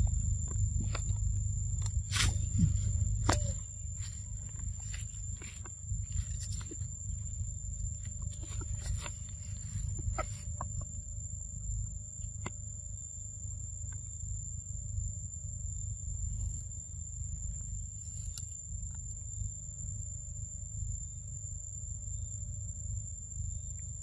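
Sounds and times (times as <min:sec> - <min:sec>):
low rumble: 0:00.0 - 0:13.0
high insect whine: 0:00.0 - 0:24.0.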